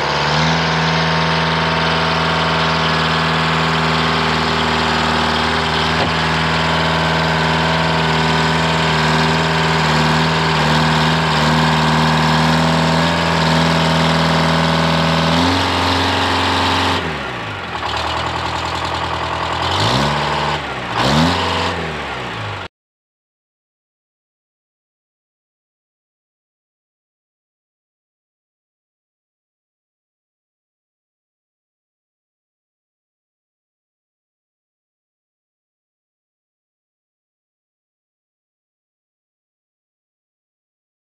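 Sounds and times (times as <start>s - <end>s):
diesel engine running under load: 0.0s - 22.7s.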